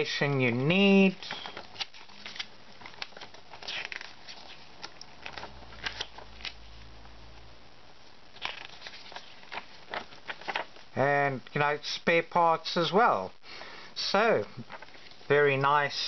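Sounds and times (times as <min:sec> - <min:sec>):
paper pages rustling: 0:00.3 - 0:06.7, 0:08.3 - 0:10.9, 0:14.5 - 0:15.3.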